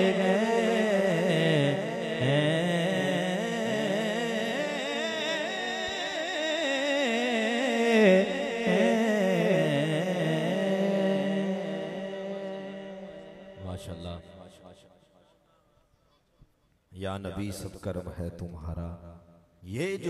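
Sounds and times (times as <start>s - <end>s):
man singing into a microphone: 0.0s - 14.8s, 19.7s - 20.0s.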